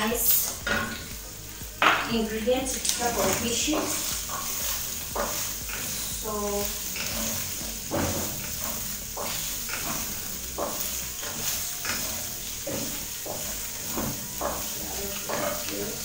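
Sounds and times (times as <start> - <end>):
meat and onions sizzling in oil: 0.0 - 16.0
wooden spoon stirring and scraping: 0.0 - 16.0.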